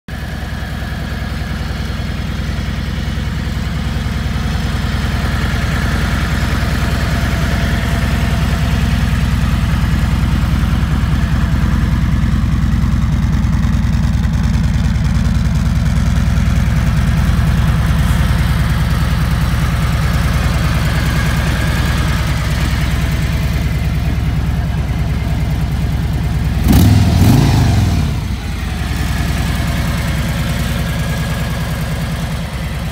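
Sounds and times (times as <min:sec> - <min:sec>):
motorcycle engine idling and revving: 0:00.1 - 0:32.9.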